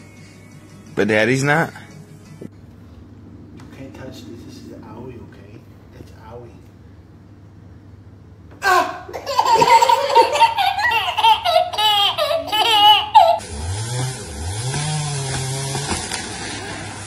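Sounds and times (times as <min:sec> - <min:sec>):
baby laughing: 0:08.6 - 0:13.5.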